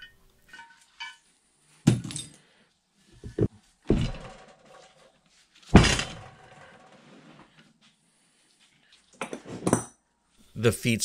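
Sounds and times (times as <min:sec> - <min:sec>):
metal vise clunking on wooden bench: 0:03.2 - 0:04.8.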